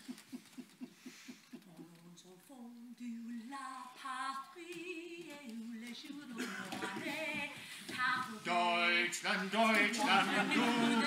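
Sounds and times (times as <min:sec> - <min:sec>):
other voices singing: 0:03.1 - 0:11.0.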